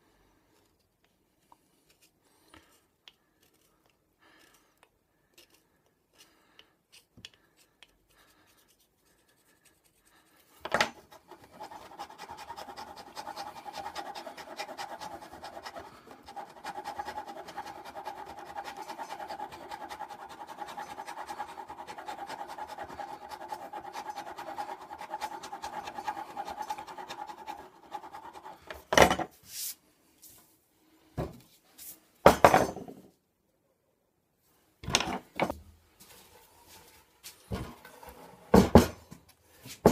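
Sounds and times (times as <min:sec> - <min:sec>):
knife scraping pencil: 0:01.5 - 0:28.9.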